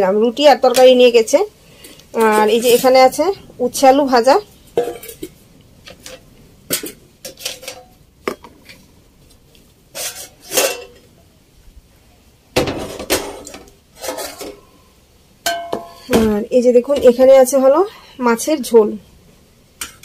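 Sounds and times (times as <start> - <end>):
metal pots and lids clattering: 4.7 - 8.8, 9.9 - 11.1, 12.6 - 14.8, 15.4 - 17.2.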